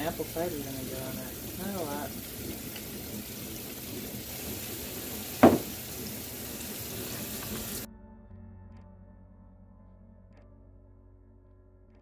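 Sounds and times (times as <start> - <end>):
tap water running into sink: 0.0 - 7.9
loud knock: 5.4 - 5.8.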